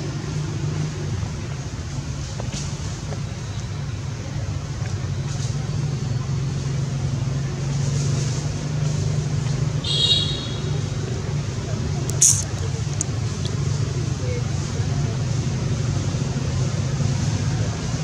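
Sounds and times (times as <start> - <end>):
high-pitched squeak: 12.1 - 12.5.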